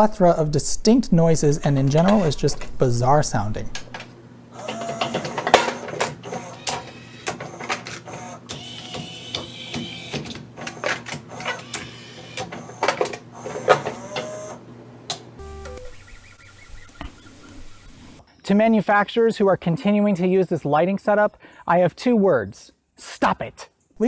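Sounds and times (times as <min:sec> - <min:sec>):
mechanical clicks and clunks: 0:01.8 - 0:02.8, 0:03.7 - 0:16.0
motor whir: 0:04.5 - 0:14.6, 0:15.4 - 0:18.2
high whine: 0:15.4 - 0:18.2.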